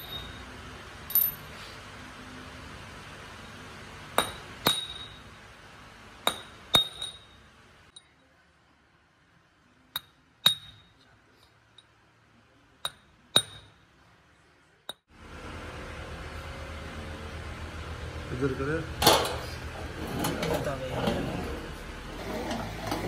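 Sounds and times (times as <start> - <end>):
hammer striking steel punch: 4.1 - 5.3, 6.2 - 7.4, 10.0 - 11.0, 12.8 - 13.8.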